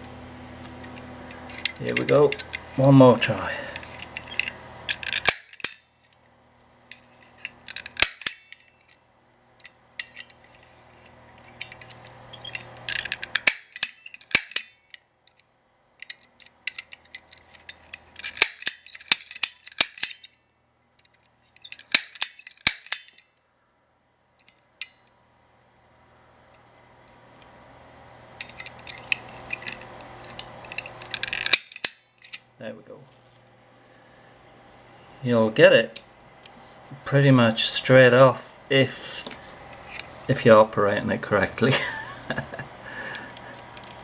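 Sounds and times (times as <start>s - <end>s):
lock pick gun metallic clicks: 3.8s - 6.2s, 7.4s - 9.0s, 11.6s - 15.4s, 16.0s - 20.3s, 21.0s - 23.2s.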